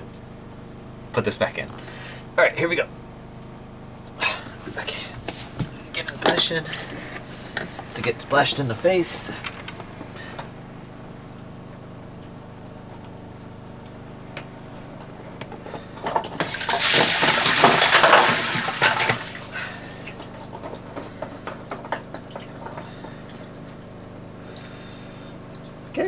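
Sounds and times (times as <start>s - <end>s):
water splashing: 16.4s - 20.6s
water gushing through a hole: 16.4s - 20.9s.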